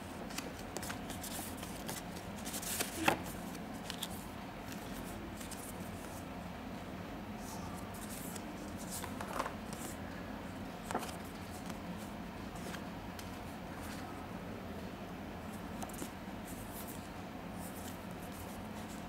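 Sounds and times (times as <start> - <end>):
low background hum: 0.0 - 19.0
paper rustling: 0.3 - 6.2, 10.8 - 14.1.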